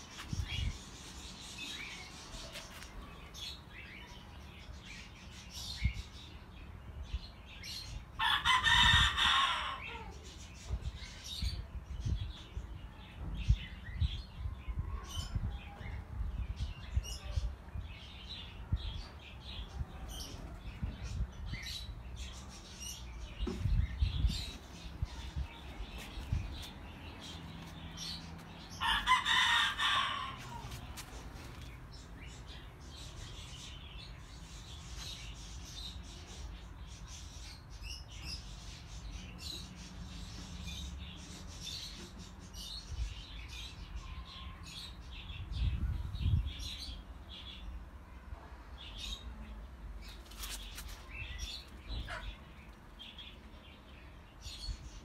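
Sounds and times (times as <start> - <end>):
rooster crowing: 28.8 - 30.7.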